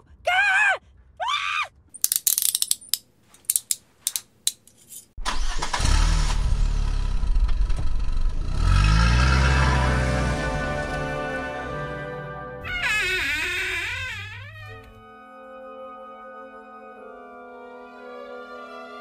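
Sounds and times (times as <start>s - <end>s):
golf cart engine revving: 5.2s - 11.8s.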